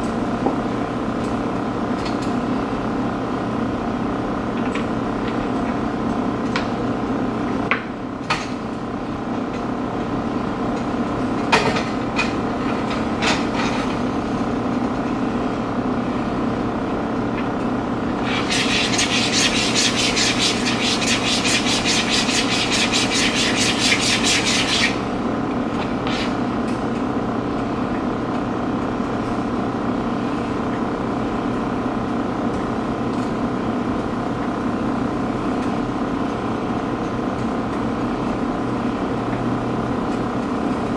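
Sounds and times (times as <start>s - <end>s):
machine hum: 14.1s - 28.3s.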